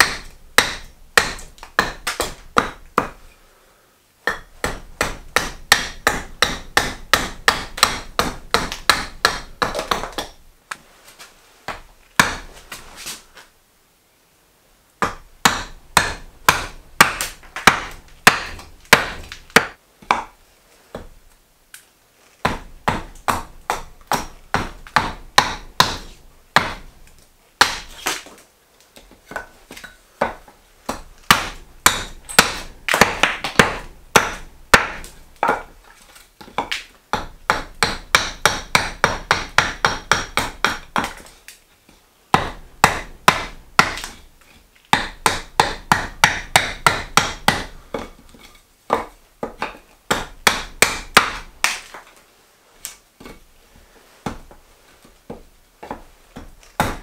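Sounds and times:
axe chopping wood: 0.0s - 3.2s, 4.2s - 10.4s, 11.7s - 12.5s, 15.0s - 20.3s, 22.4s - 26.9s, 27.6s - 28.3s, 30.2s - 35.7s, 36.4s - 41.3s, 42.3s - 44.2s, 44.9s - 52.0s, 55.8s - 57.0s.

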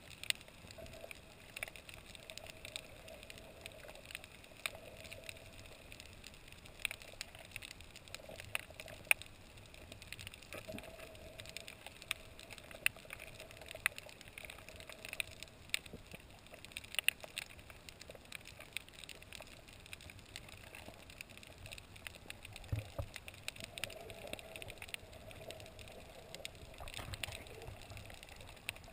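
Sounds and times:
sharp clicks and crackles: 0.0s - 28.9s
muffled underwater noise: 0.5s - 28.9s.

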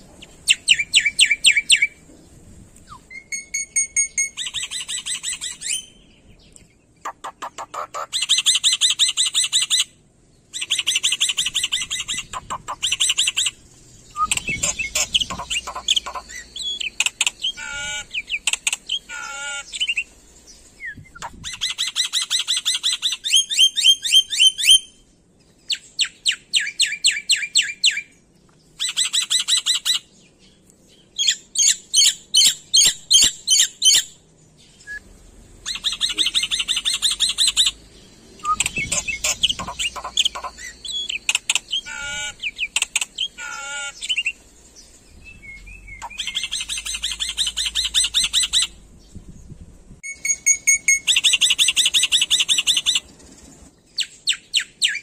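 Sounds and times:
bird chattering and whistling: 0.2s - 2.0s, 2.8s - 6.1s, 7.0s - 25.0s, 28.8s - 30.1s, 31.2s - 34.2s, 34.8s - 37.8s, 38.4s - 44.4s, 45.2s - 48.8s, 50.0s - 53.1s.

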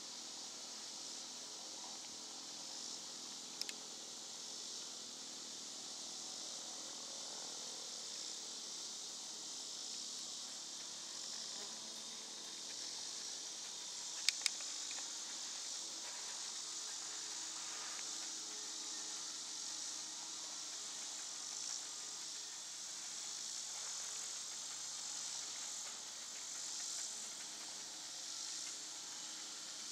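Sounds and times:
insects shrilling: 9.6s - 29.9s
sharp clicks: 14.2s - 15.0s.

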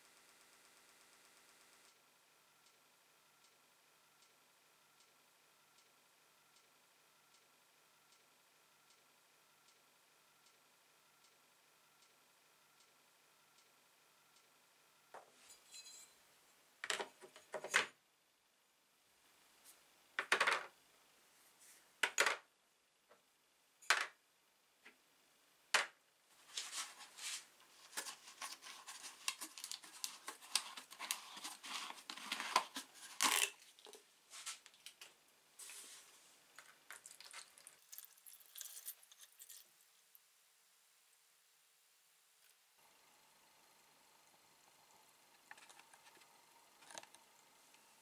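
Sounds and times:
plastic bottle crackling: 27.9s - 34.0s
liquid pouring with faint hiss: 36.9s - 39.9s.

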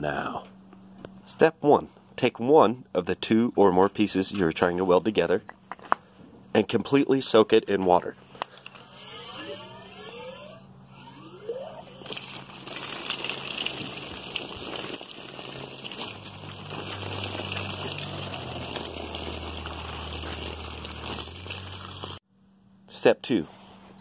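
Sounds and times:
squeaking spigot valve: 8.7s - 22.2s
water gushing onto wood: 12.0s - 22.2s.

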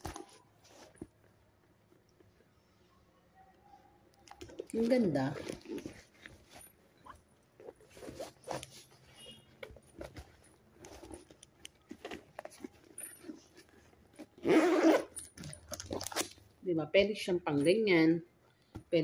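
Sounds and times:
handbag packaging rustling: 4.3s - 16.5s.

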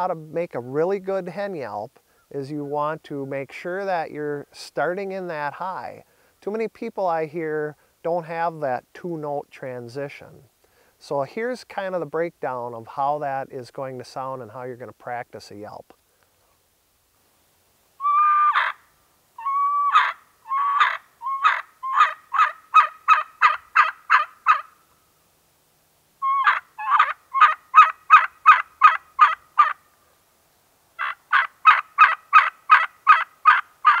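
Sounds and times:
turkey call yelps: 18.0s - 24.8s, 26.2s - 29.8s, 31.0s - 34.0s.

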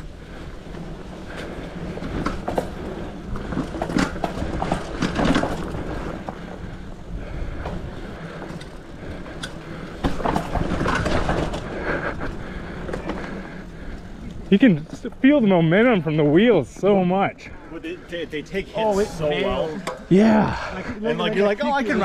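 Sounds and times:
bike tyres rumbling on trail: 0.0s - 22.0s
bike clicks and knocks: 0.6s - 15.2s, 19.8s - 20.1s.

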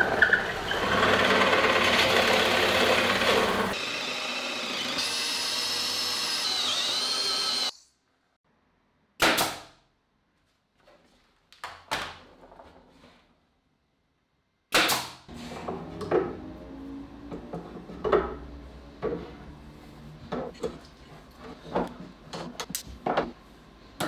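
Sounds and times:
drill press boring wood: 0.0s - 7.8s
cordless drill whining through wood: 0.4s - 7.9s.

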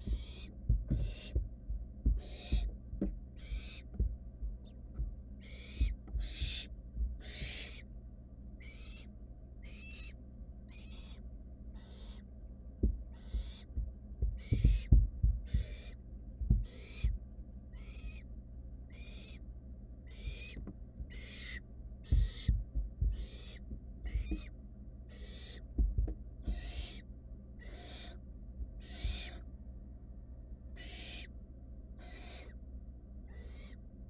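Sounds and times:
owl chicks hissing begging calls: 0.0s - 1.4s, 2.2s - 2.7s, 3.4s - 3.9s, 5.4s - 7.9s, 8.6s - 11.2s, 11.8s - 12.3s, 13.1s - 13.7s, 14.4s - 16.0s, 16.6s - 18.3s, 18.9s - 25.7s, 26.4s - 28.2s, 28.8s - 29.5s, 30.8s - 31.3s, 32.0s - 32.6s, 33.3s - 33.8s
thumps and scuffs of chicks: 0.0s - 4.2s, 4.9s - 7.8s, 12.8s - 17.2s, 20.2s - 21.3s, 22.0s - 24.5s, 25.7s - 27.0s, 28.6s - 29.4s.

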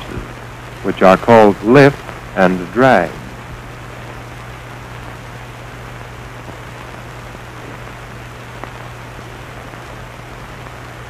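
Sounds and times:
constant low hum: 0.0s - 11.0s
steady film hiss: 0.0s - 11.0s.

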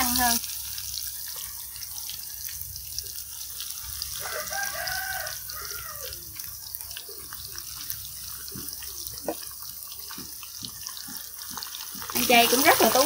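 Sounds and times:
food sizzling in hot oil: 0.0s - 13.0s
rooster crowing: 4.1s - 6.3s.

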